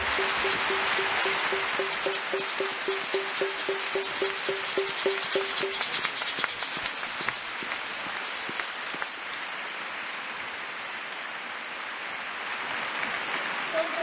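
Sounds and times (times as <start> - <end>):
rhythmic clap-along: 0.0 - 9.5.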